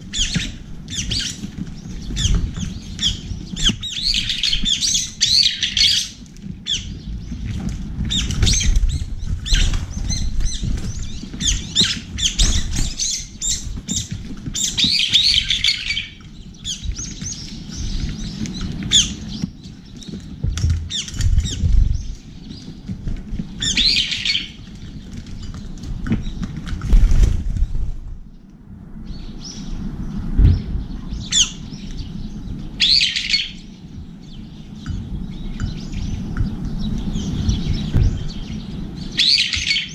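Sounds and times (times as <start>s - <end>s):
wing flaps: 0.0s - 28.3s
birds chirping and calling: 0.0s - 39.9s
low rumble: 6.6s - 24.0s, 24.8s - 39.2s.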